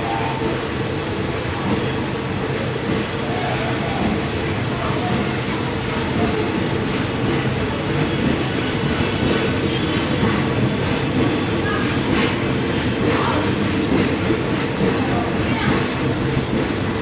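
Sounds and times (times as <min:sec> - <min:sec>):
train wheels and running gear: 0:00.0 - 0:17.0.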